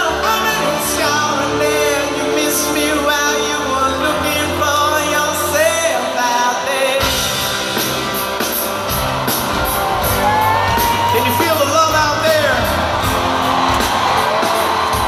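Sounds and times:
man singing: 0.0 - 7.6, 11.1 - 12.8
bass guitar: 0.0 - 15.0
drum beat: 7.0 - 15.0.

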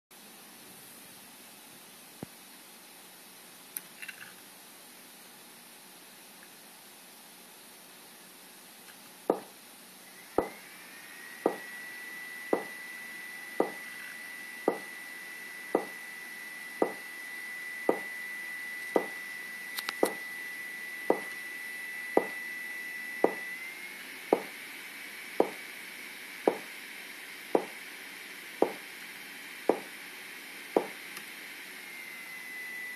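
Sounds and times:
steady high whine: 0.2 - 32.9.

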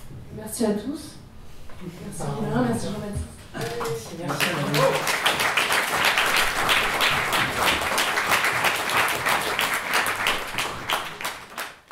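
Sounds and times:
audience applauding: 3.6 - 11.9.

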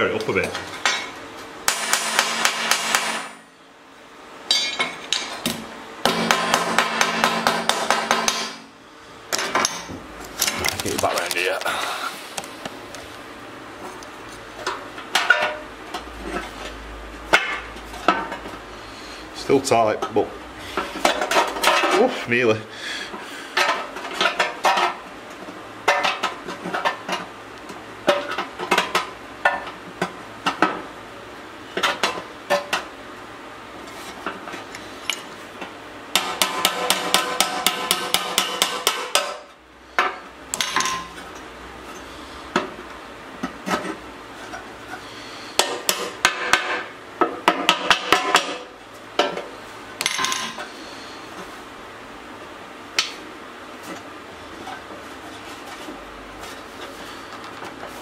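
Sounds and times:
hammer tapping on metal: 6.1 - 8.6.

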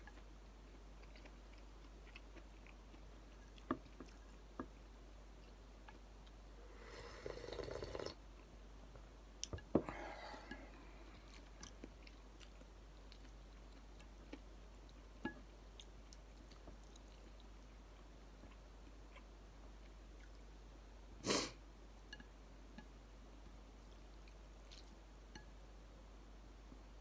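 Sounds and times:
faint chewing: 0.0 - 4.8, 9.4 - 20.5, 23.8 - 25.5
person sipping soup: 6.7 - 8.2.

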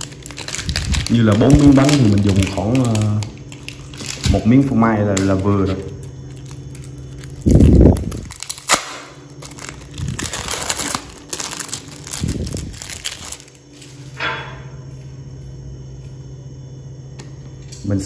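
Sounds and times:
plastic wrapper crinkling: 0.0 - 14.1.

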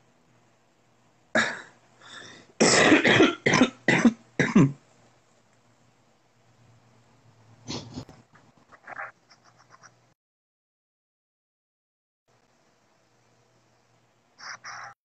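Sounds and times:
person coughing: 1.3 - 1.8, 2.6 - 4.8.

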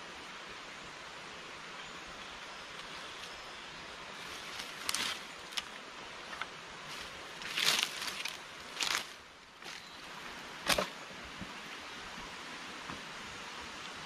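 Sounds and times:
steady hiss: 0.0 - 14.0
footsteps in dry leaves: 2.8 - 10.9.

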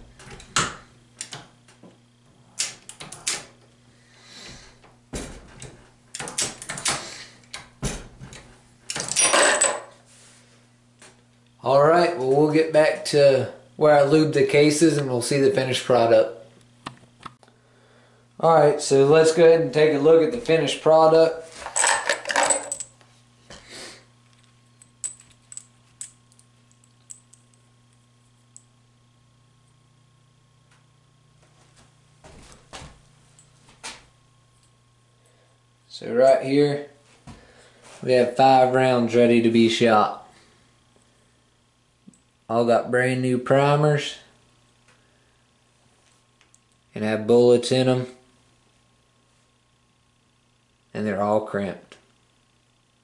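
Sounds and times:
faint electrical hum: 0.0 - 53.0
brass cartridges clicking: 24.3 - 28.7.

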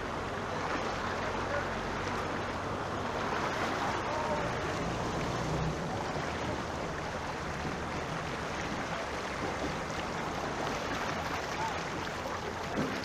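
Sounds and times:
floodwater rushing: 0.0 - 13.0.

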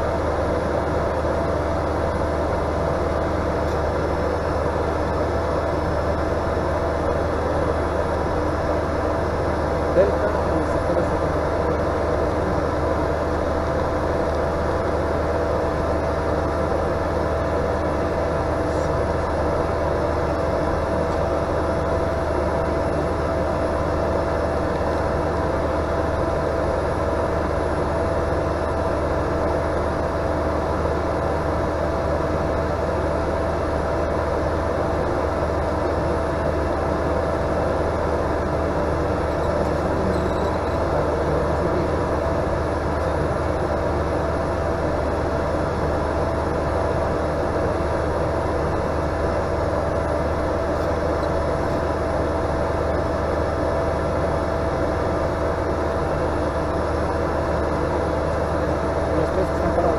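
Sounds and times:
turboprop engine droning: 0.0 - 59.9.

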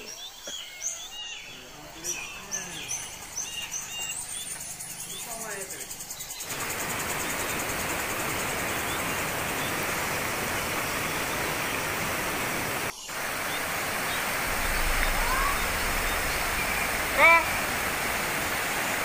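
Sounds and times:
river rushing over stones: 6.5 - 19.0.

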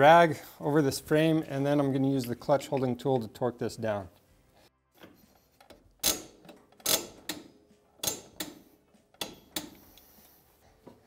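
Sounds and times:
torque wrench clicking: 5.6 - 8.6.

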